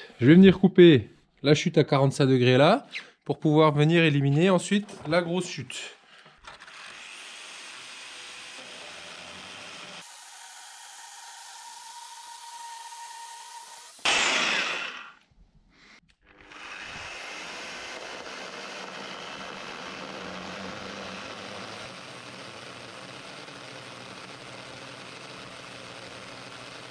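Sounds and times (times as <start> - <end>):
circular saw cutting wood: 4.8 - 15.2, 16.2 - 26.9
loud burst: 13.3 - 15.2.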